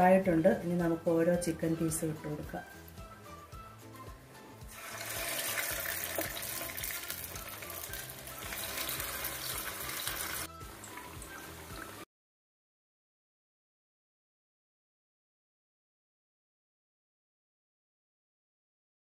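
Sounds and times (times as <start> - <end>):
soft background music: 0.0 - 12.1
chicken sizzling in frying pan: 4.6 - 12.0.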